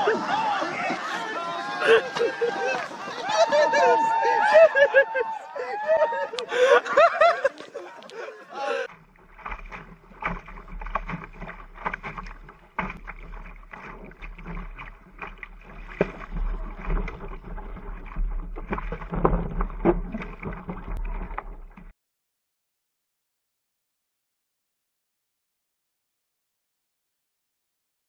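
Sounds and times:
excited voices: 0.0 - 8.9
waves splashing against boat hull: 8.9 - 21.9.

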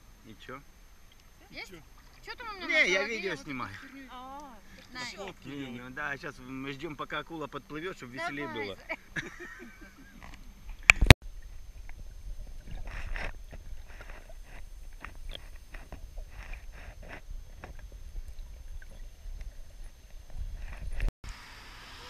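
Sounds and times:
muffled underwater rumble: 9.9 - 21.1.

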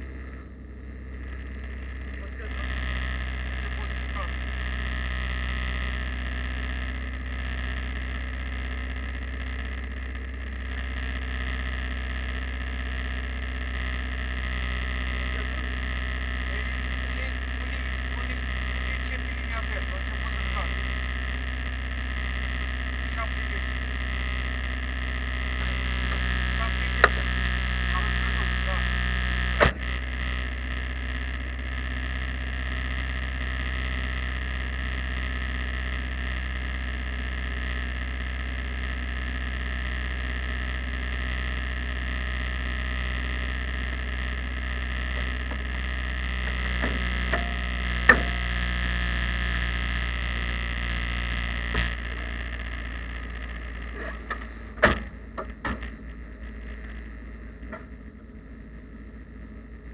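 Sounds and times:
steady low hum: 0.0 - 59.9
sharp clicks and knocks: 29.6 - 29.9, 46.8 - 48.4, 54.2 - 56.0, 57.6 - 57.9.

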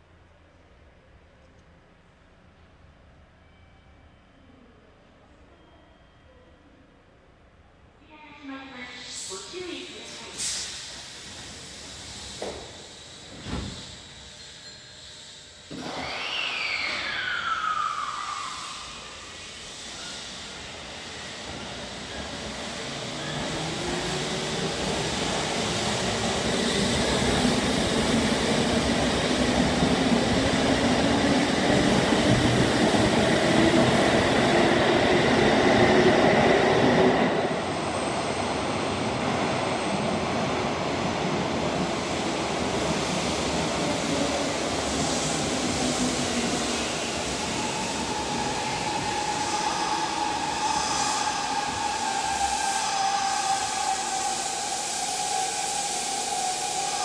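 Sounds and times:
train motor whine rising: 15.6 - 30.4
train wheels rumbling on rails: 17.7 - 57.0.

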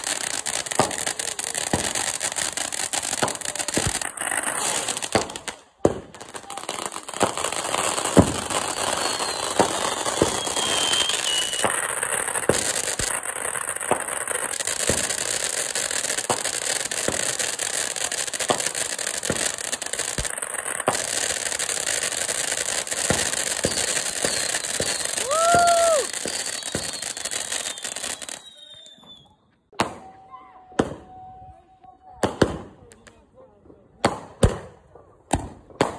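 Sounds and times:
firework fountain hissing: 6.4 - 28.5
whistling tones: 8.6 - 11.8, 24.2 - 31.9.

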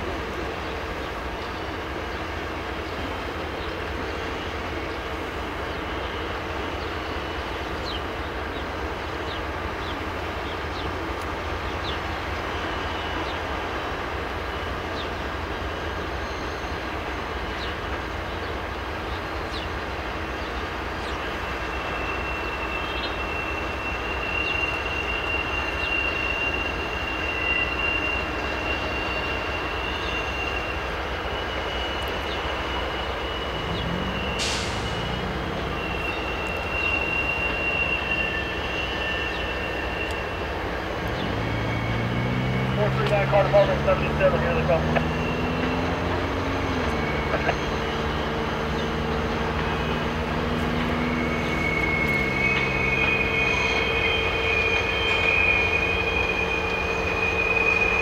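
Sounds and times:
freight train rolling: 0.0 - 58.0
high wheel squeal: 11.8 - 17.0, 21.1 - 58.0.

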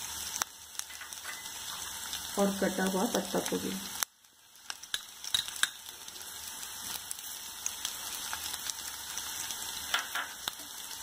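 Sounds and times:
vegetables sizzling in hot oil: 0.0 - 11.0
spoon knocking pan: 0.8 - 1.9, 4.8 - 5.8, 9.8 - 10.7.

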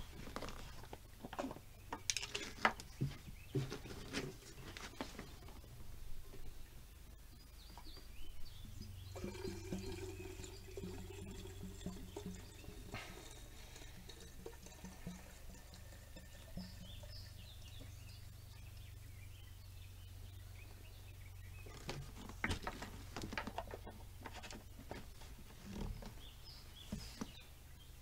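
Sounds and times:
liquid glugging from a can: 8.4 - 18.9.

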